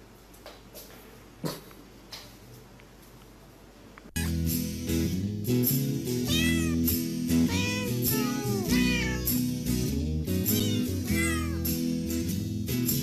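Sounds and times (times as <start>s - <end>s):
background music with steady beat: 4.2s - 13.0s
cat meowing: 6.3s - 9.4s, 10.5s - 11.7s.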